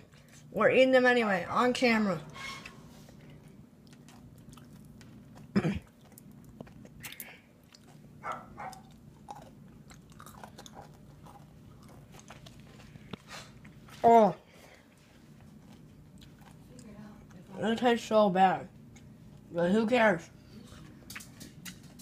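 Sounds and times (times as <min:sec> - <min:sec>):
person chewing candy: 0:03.5 - 0:13.9, 0:15.4 - 0:17.5.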